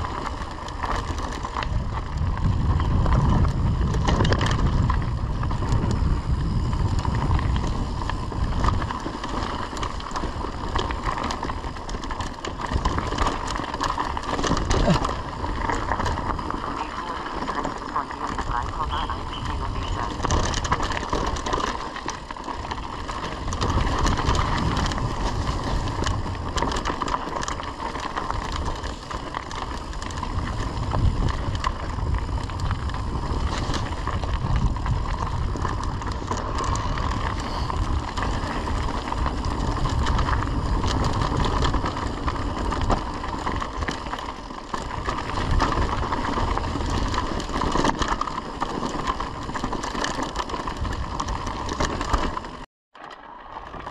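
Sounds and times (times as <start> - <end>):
wind on microphone: 0.0 - 52.6
bike rattles and clicks: 0.0 - 53.9
tyres crunching over gravel: 0.0 - 53.9
steady whine: 14.2 - 25.1.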